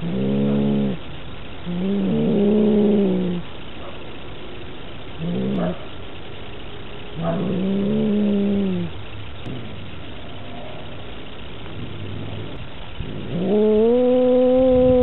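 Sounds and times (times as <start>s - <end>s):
cat yowling: 13.2s - 15.0s.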